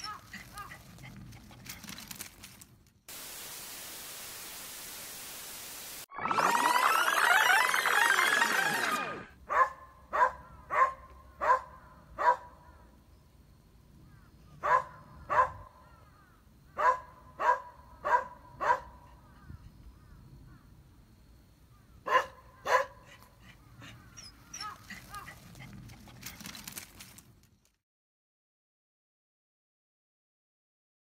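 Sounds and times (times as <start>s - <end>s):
dog barking: 9.5s - 12.6s, 14.6s - 15.7s, 16.8s - 19.1s, 22.0s - 23.2s.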